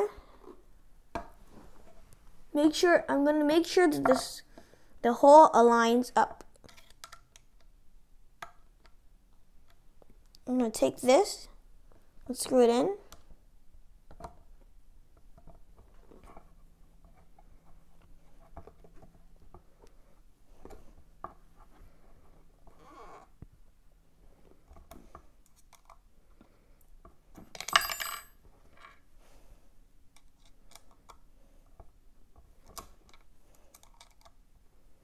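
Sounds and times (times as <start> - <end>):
small metal parts clattering: 27.5 - 29.0.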